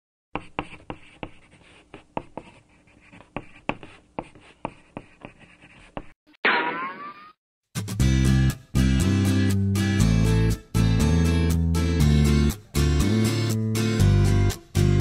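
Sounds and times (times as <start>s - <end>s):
pen scratching on paper: 0.4s - 6.2s.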